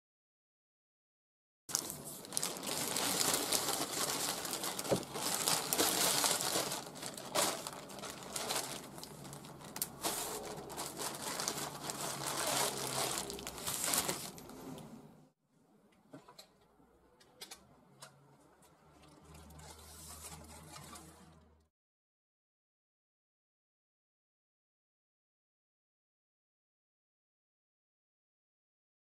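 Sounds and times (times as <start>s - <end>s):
plastic bag crinkling: 1.7s - 14.9s.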